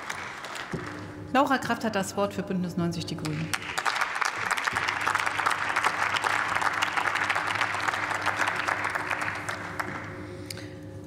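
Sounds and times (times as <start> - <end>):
hand-clapping applause: 0.0 - 1.1, 3.2 - 10.4.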